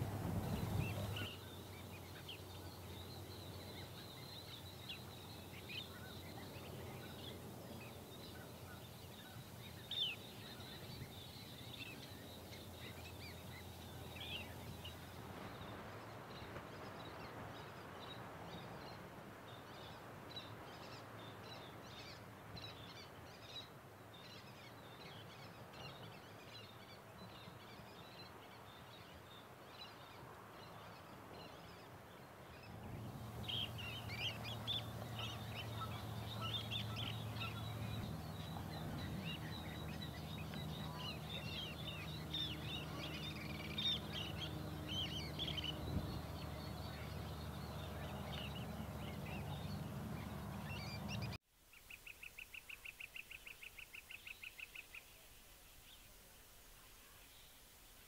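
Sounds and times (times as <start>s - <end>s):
sandpipers calling: 0.0s - 15.6s, 32.7s - 51.4s
low steady hum: 0.0s - 15.9s, 32.6s - 51.4s
faint bird chirps: 32.7s - 57.7s.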